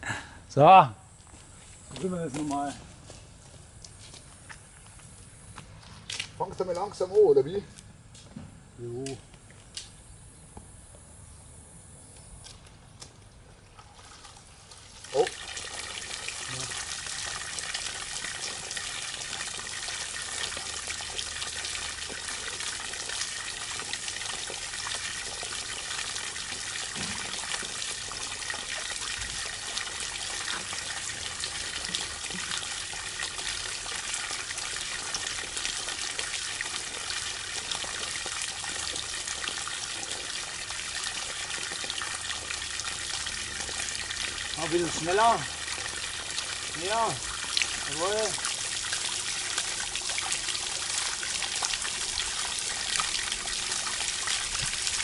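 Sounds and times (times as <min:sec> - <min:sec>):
water gushing and splashing: 0:13.8 - 0:55.0.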